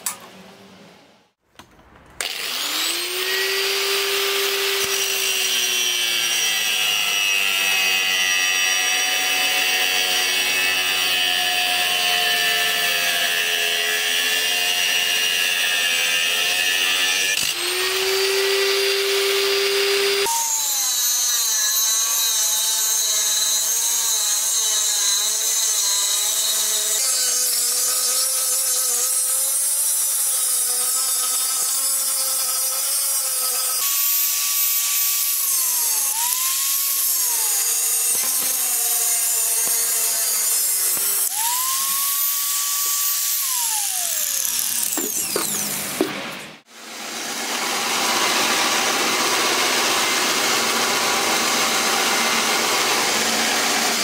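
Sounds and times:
angle grinder cutting steel: 2.2s - 54.0s.

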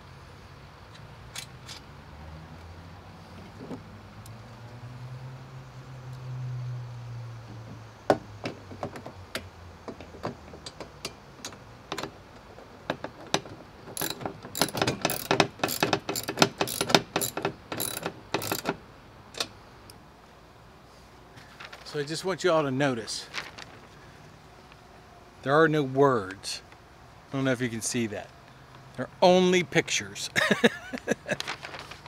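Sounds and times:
ratchet wrench clicking: 14.0s - 18.8s.

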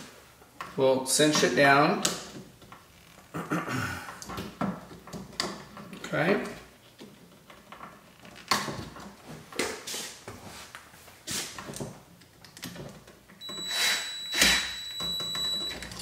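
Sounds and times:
cordless driver whine: 13.4s - 16.0s.

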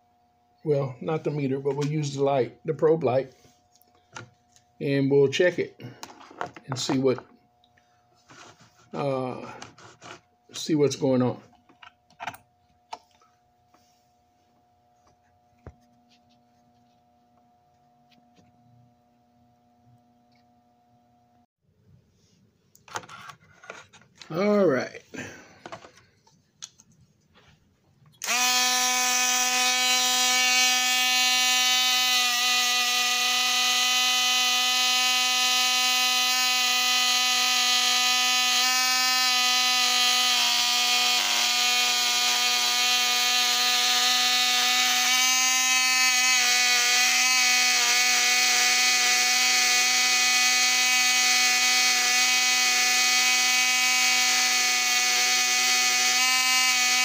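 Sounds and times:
small electric motor whine: 28.2s - 57.0s.

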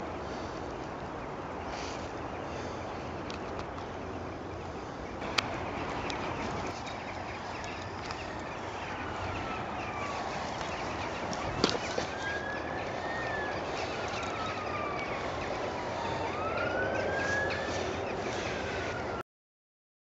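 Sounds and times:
outdoor background noise: 0.0s - 19.2s
distant siren wailing: 5.2s - 19.2s.

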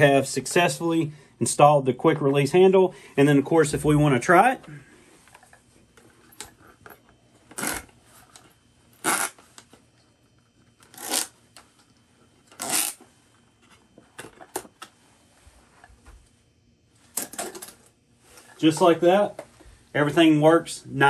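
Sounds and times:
dive mask straps rustling: 5.0s - 9.8s, 10.6s - 11.8s, 12.4s - 16.4s.

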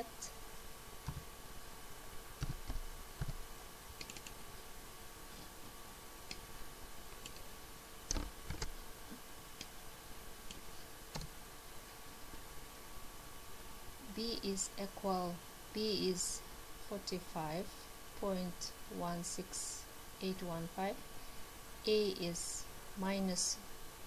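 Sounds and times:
faint steady hum: 0.0s - 24.0s.

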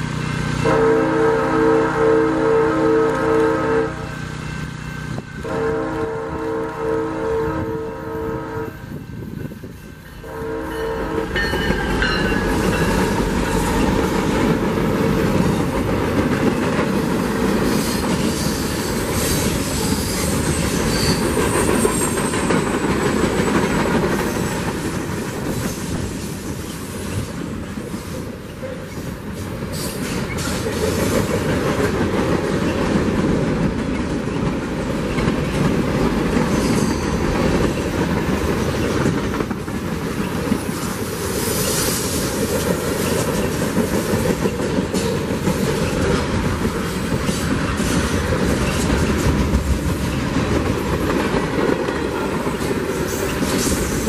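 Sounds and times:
train horn: 0.6s - 4.4s, 5.4s - 9.0s, 10.2s - 12.6s
freight cars rumbling and clattering: 11.0s - 41.0s, 42.1s - 54.0s
wheel squeals: 17.7s - 24.6s.

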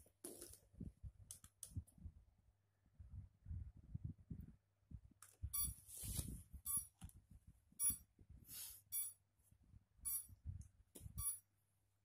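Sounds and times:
short electronic beeps: 5.5s - 5.8s, 6.6s - 6.9s, 7.8s - 8.1s, 8.9s - 9.2s, 10.1s - 10.4s, 11.1s - 11.4s.

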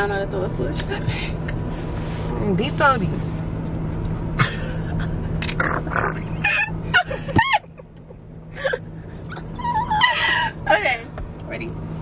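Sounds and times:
low car interior hum: 0.0s - 12.0s
woman squealing: 9.3s - 10.5s.

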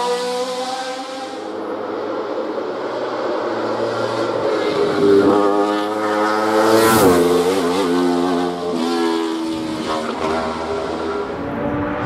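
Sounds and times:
race car engine at full throttle: 0.0s - 12.0s.

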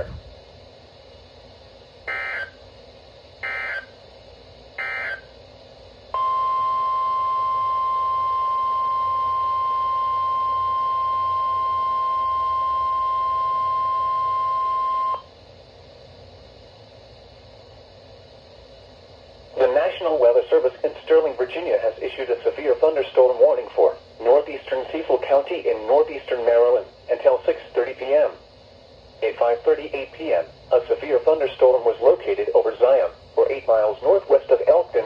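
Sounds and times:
steady alarm tone: 2.0s - 2.7s, 3.4s - 4.0s, 4.8s - 5.4s, 6.1s - 15.3s
warbling digital data bursts: 2.1s - 2.6s, 3.4s - 4.0s, 4.8s - 5.3s.

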